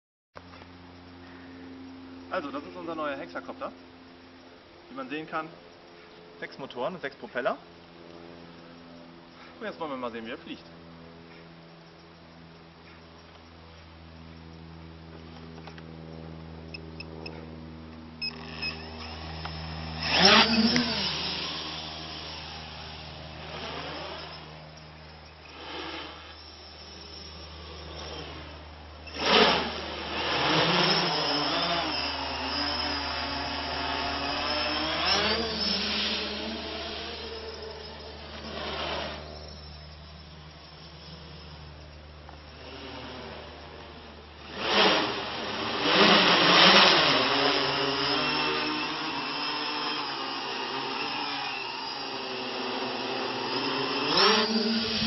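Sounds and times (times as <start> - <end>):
drone propellers buzzing: 0.4 - 55.0
model helicopter rotor whirring: 0.6 - 55.0.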